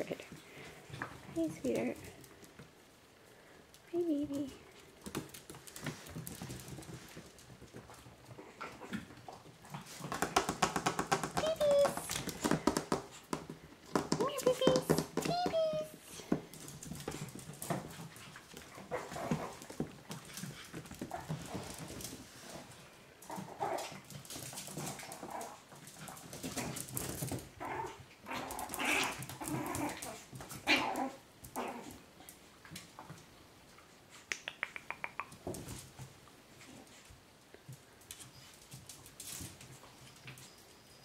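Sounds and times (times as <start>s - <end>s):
claws clicking on tile floor: 10.0s - 15.5s, 23.2s - 32.0s, 34.1s - 35.9s.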